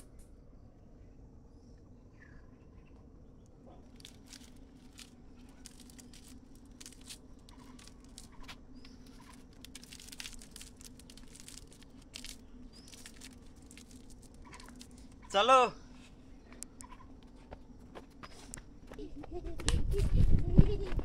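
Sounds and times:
leaves rustling and crackling: 3.8s - 15.4s.

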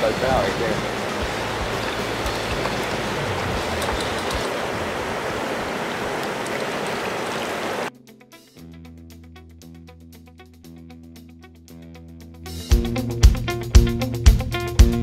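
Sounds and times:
stream rushing over rocks: 0.0s - 7.9s.

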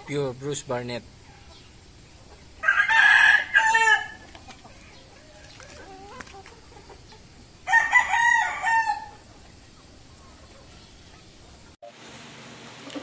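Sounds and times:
faint fowl sounds: 1.2s - 11.7s
rooster crowing: 2.6s - 6.2s, 7.6s - 9.3s.

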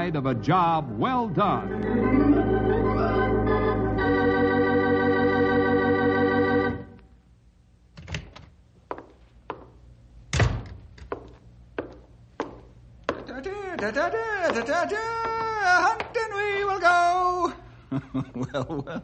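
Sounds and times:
organ chord: 0.0s - 7.1s.

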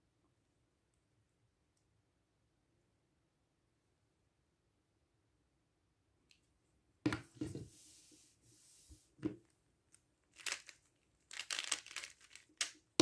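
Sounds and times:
puzzle cube layers clacking: 10.4s - 12.8s.

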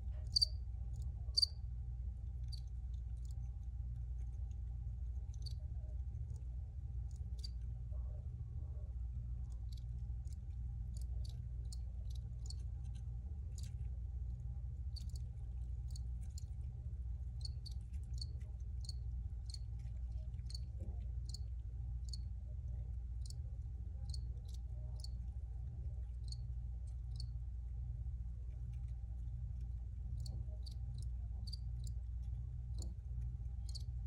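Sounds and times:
steady low hum: 0.0s - 34.0s
crickets chirping: 0.3s - 0.6s, 1.4s - 1.6s, 17.4s - 19.6s, 24.1s - 25.2s, 30.2s - 32.0s, 33.6s - 33.9s.

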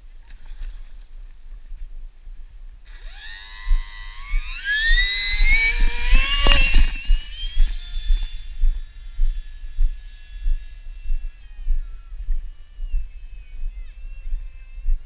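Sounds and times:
wind rumbling on microphone: 0.0s - 15.0s
electric motor and propeller whining: 2.8s - 14.1s.

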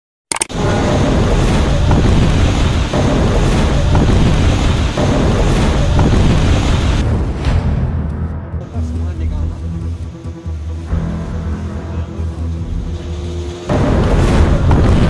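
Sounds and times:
river rushing loudly: 12.4s - 15.0s.

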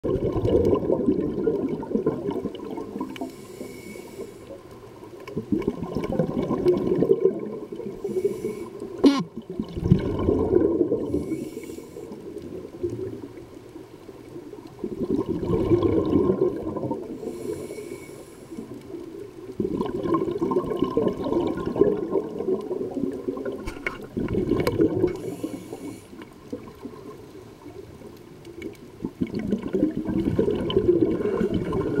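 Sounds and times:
exhaled bubbles rushing: 0.0s - 3.4s, 5.2s - 11.4s, 14.6s - 17.4s, 18.9s - 32.0s
regulator inhale hiss: 3.2s - 4.7s, 8.0s - 9.0s, 11.1s - 12.2s, 17.2s - 18.8s, 25.1s - 26.4s.

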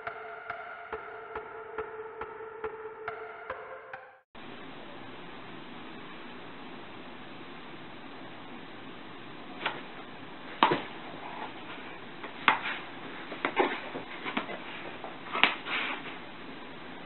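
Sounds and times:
animals scuffling: 9.5s - 16.4s.

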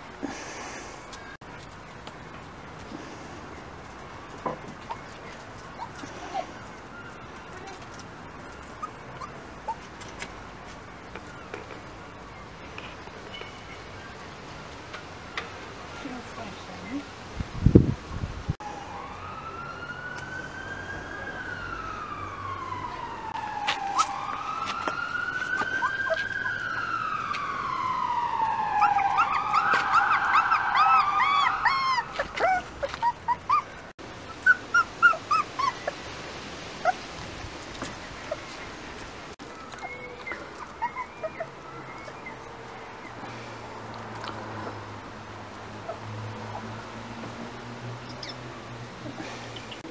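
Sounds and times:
puppies whimpering and yipping: 4.8s - 10.3s, 25.5s - 27.0s, 28.8s - 36.0s, 39.6s - 43.2s
emergency vehicle siren wailing: 18.6s - 33.9s.

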